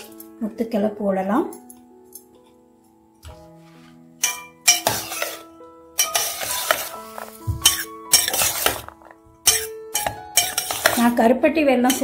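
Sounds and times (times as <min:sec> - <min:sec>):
background music with held notes: 0:00.0 - 0:12.0
spoon scraping steel bowl: 0:04.2 - 0:05.4, 0:06.0 - 0:11.2.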